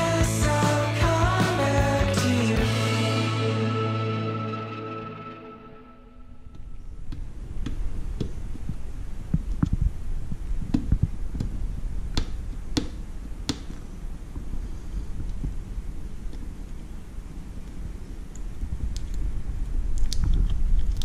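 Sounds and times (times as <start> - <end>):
fingers clicking and tapping: 10.7 - 13.8.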